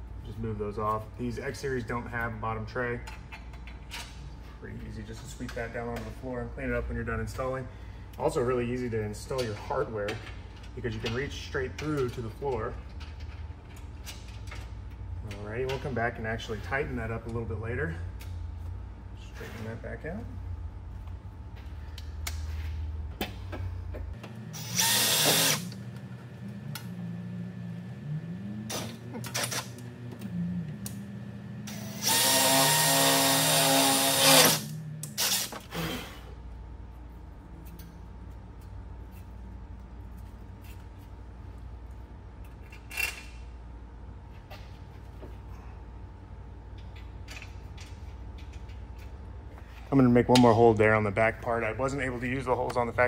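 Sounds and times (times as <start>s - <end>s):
low hum: 10.2s - 33.0s
cordless drill boring into metal: 24.6s - 25.7s, 31.7s - 35.5s.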